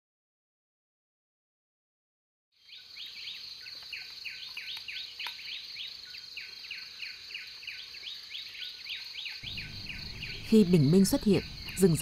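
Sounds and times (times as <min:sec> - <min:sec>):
high insect drone: 0:02.7 - 0:12.0.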